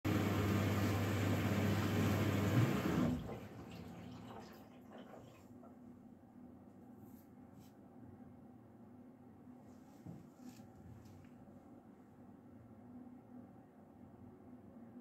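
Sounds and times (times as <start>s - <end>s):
washing machine running: 0.0s - 5.8s.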